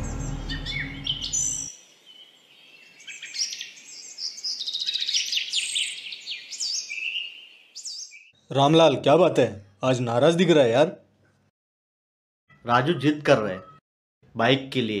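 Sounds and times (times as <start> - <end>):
small birds chirping: 0.0 - 8.5.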